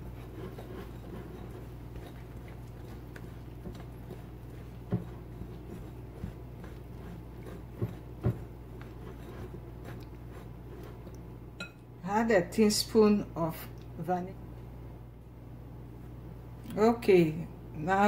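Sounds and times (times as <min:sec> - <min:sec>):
whisk knocking glass bowl: 0:00.0 - 0:10.5
whisk scraping batter: 0:00.0 - 0:11.3
steady low hum: 0:00.0 - 0:18.0.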